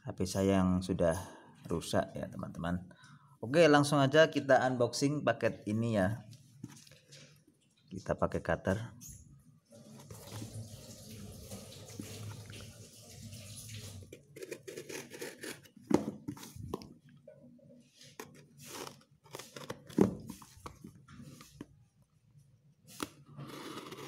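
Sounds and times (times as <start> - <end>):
knife slicing through packing tape: 14.4 - 15.8
cardboard box rustling: 14.4 - 16.9.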